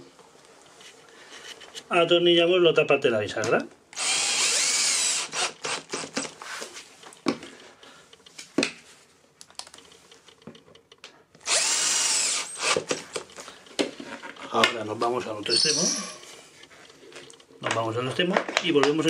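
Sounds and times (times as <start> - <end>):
cordless drill driving screws: 4.0 - 6.4, 11.4 - 13.1.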